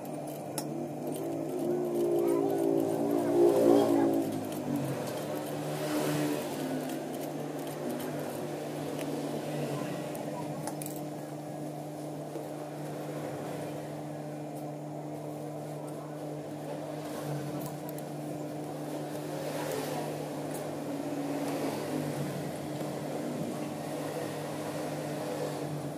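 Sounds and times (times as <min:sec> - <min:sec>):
sewing machine running: 0:01.0 - 0:09.3.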